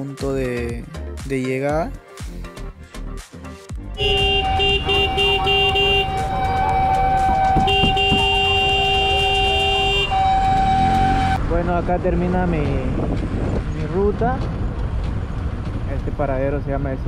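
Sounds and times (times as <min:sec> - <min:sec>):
horn held: 0:04.0 - 0:11.4
short horn toots: 0:04.0 - 0:11.4
low rumble of engines: 0:04.0 - 0:17.0.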